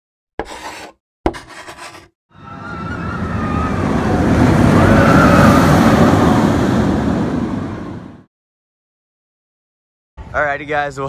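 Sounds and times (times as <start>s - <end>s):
roller coaster rushing rumble: 2.4s - 8.3s.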